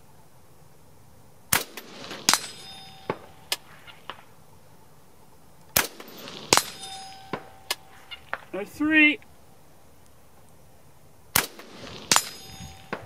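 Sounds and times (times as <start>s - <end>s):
rifle shots: 1.5s - 4.3s, 5.7s - 8.5s, 11.3s - 13.0s
metallic clinks: 1.8s - 3.9s, 5.9s - 8.5s, 12.0s - 13.0s
short ringing tone: 6.6s - 8.3s.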